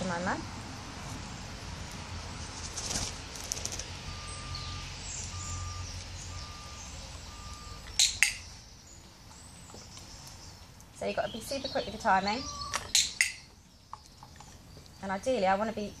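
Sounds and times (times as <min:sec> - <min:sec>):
short beeps: 0:05.3 - 0:07.8.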